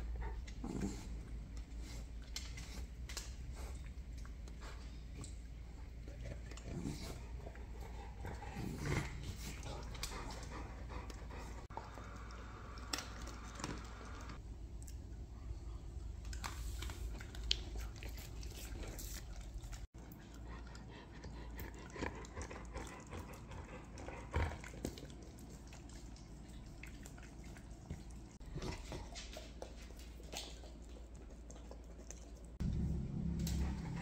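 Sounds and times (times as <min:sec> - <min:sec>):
dog licking and lip smacking: 0:16.1 - 0:34.0.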